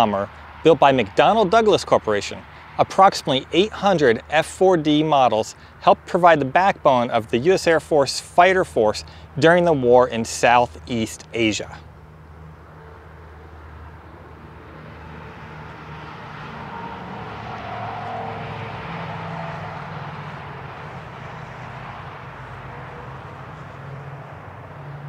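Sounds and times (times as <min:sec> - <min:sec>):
aircraft flying past: 0:07.1 - 0:25.0.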